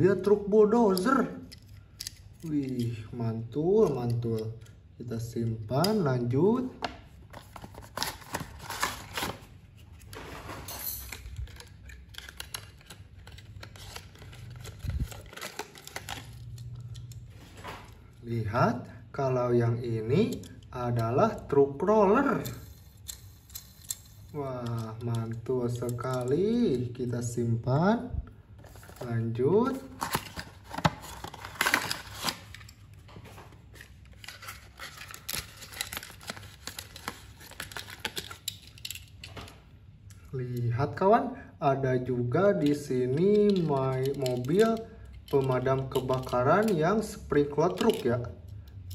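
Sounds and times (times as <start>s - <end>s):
cardboard packaging rustling: 7.1s - 18.0s, 28.6s - 39.1s.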